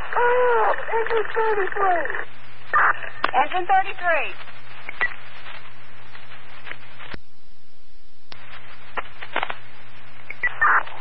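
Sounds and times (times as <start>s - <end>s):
radio static hiss with crackles: 0.0s - 7.4s, 8.2s - 11.0s
short radio squawk: 10.4s - 11.0s.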